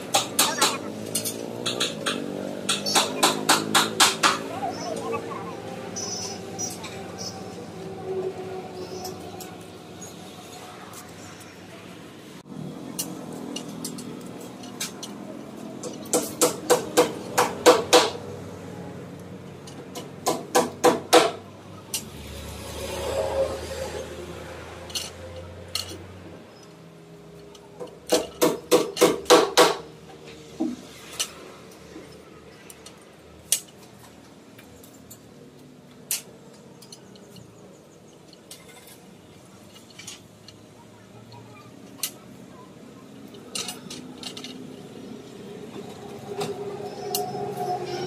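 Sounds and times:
metal rebar clinking: 0:00.1 - 0:04.9.

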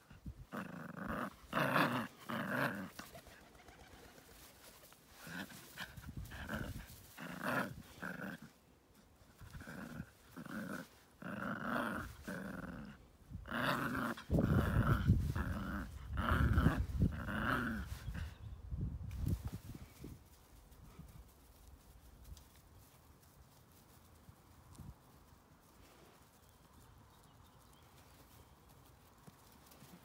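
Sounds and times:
puppy play-growling: 0:00.1 - 0:03.4, 0:04.3 - 0:08.6, 0:09.3 - 0:18.3.

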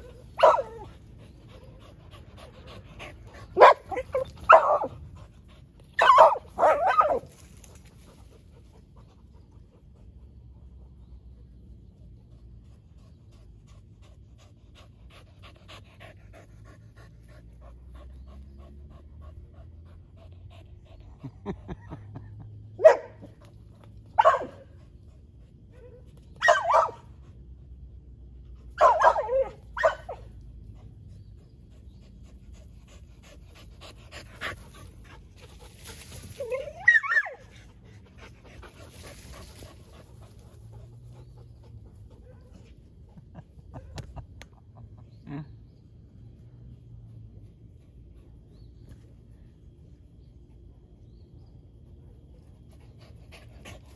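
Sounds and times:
dogs barking: 0:00.0 - 0:00.9, 0:03.4 - 0:05.0, 0:06.0 - 0:07.3, 0:22.8 - 0:23.3, 0:24.2 - 0:24.7, 0:25.8 - 0:27.1, 0:28.8 - 0:30.3
dog panting: 0:00.8 - 0:05.9, 0:37.6 - 0:43.9.

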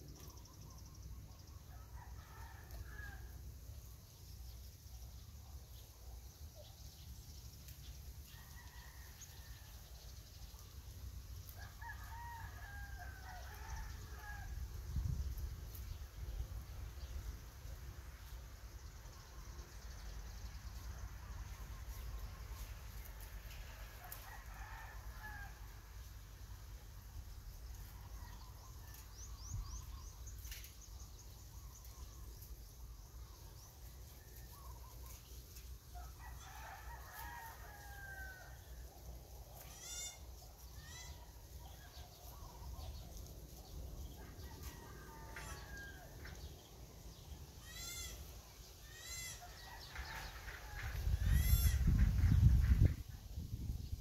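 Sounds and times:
rooster crowing faintly: 0:11.5 - 0:14.6, 0:23.0 - 0:25.8, 0:44.1 - 0:46.5.

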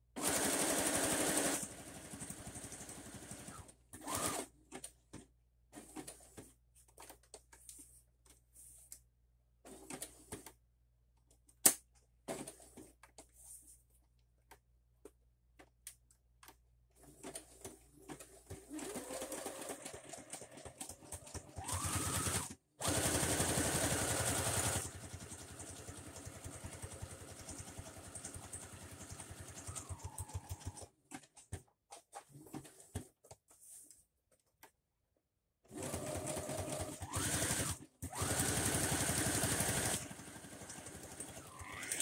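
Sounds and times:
sewing machine stitching: 0:00.2 - 0:04.8, 0:17.0 - 0:31.5, 0:35.7 - 0:42.0.

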